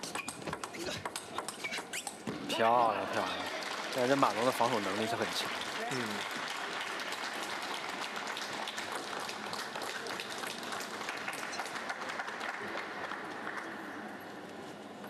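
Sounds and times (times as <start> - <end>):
audience applauding: 2.6 - 14.2.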